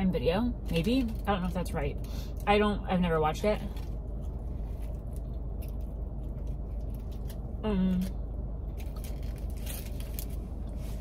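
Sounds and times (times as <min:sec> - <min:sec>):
low hum: 0:00.0 - 0:11.0
person humming: 0:07.6 - 0:08.1.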